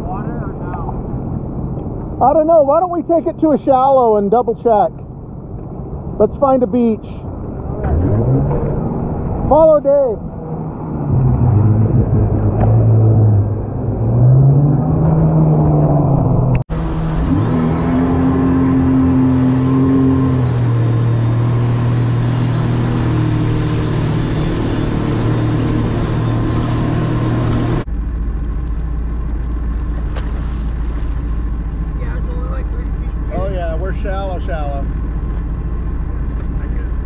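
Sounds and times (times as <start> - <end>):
jet ski engine running: 16.8 - 37.0.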